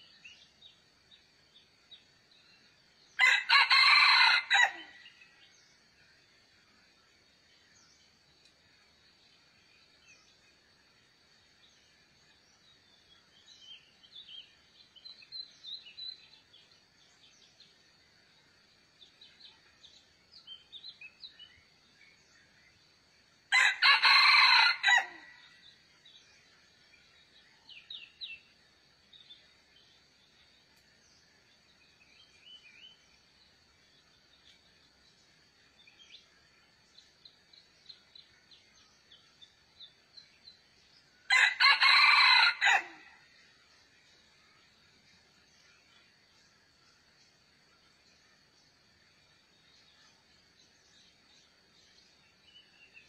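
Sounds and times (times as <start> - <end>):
small birds chirping: 0.0 - 3.9, 4.5 - 53.0
rooster crowing: 3.2 - 5.0, 23.5 - 25.3, 41.3 - 43.2.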